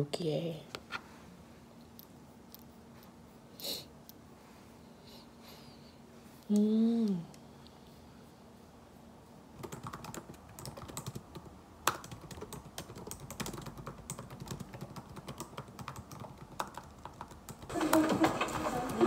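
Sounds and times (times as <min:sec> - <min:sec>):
typing on laptop keyboard: 0:09.6 - 0:19.0.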